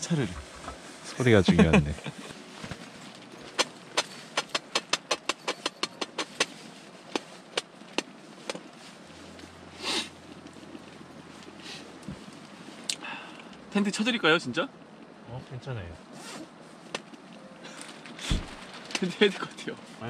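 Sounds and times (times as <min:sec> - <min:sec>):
short hiss: 0:09.8 - 0:10.1.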